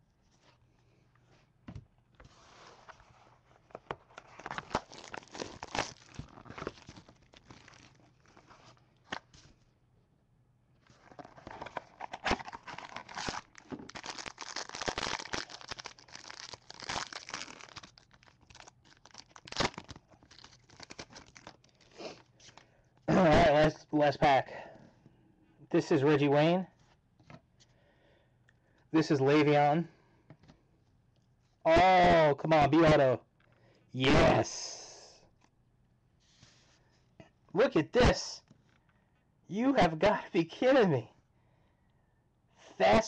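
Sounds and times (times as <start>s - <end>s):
plastic wrapper tearing and crinkling: 4.1s - 9.3s, 11.0s - 22.6s.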